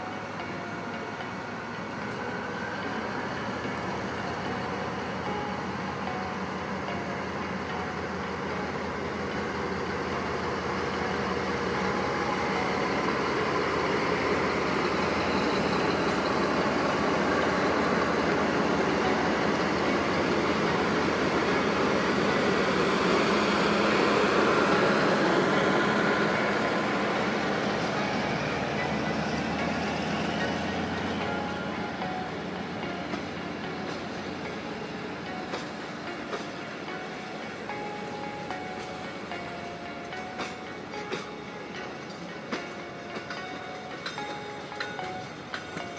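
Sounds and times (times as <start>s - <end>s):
model train running past: 0.0s - 45.9s.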